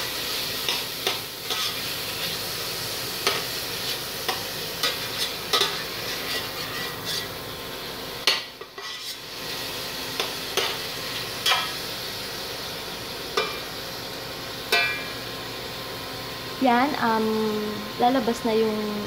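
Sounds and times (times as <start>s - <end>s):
meat sizzling in a pot: 0.0s - 19.0s
metal spoon scraping a pot: 4.8s - 7.4s, 8.6s - 9.3s.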